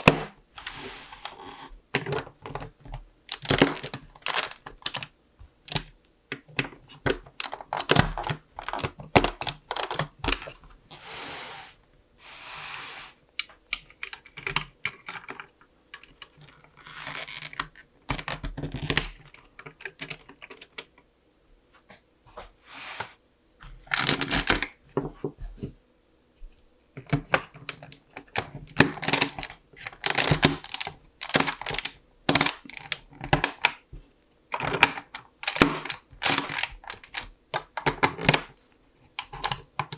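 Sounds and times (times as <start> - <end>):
plastic parts scraping: 0.0 - 11.0, 13.5 - 20.9, 23.7 - 25.7, 27.0 - 33.7, 34.5 - 39.9
plastic bricks clicking and snapping: 1.9 - 10.6, 27.0 - 33.8, 34.5 - 39.9.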